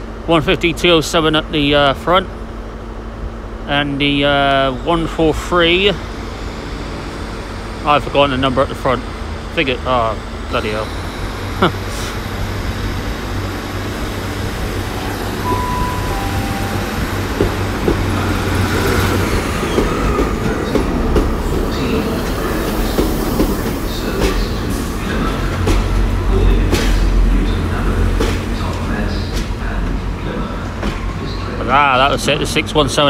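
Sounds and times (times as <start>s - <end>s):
diesel train engine drone: 0.0s - 33.0s
train wheels clicking over rail joints: 17.3s - 31.2s.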